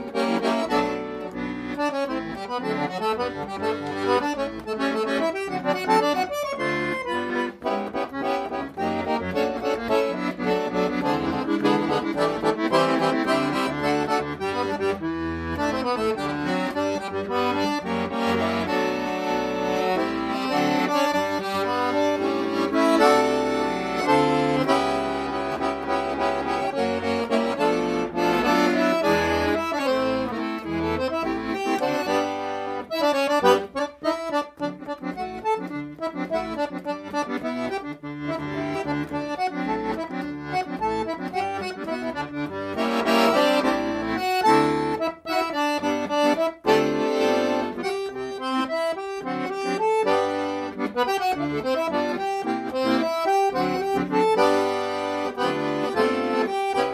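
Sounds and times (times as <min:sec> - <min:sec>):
accordion music: 0:00.0 - 0:56.9.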